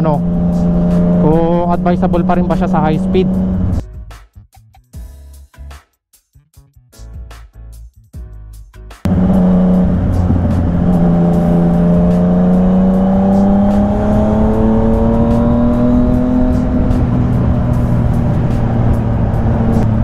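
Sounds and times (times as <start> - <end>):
motorcycle engine accelerating: 0.0 - 3.8, 9.1 - 20.0
soft music: 0.0 - 5.8, 6.6 - 20.0
wind rush: 9.1 - 20.0.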